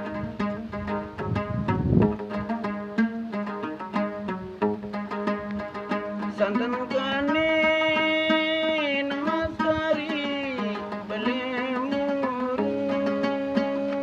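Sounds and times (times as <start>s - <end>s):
plucked lute notes: 0.0s - 14.0s
man singing: 6.2s - 14.0s.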